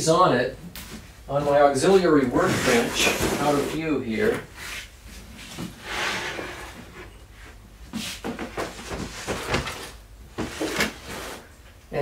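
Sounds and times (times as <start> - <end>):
wood rubbing slide: 5.8 - 7.1.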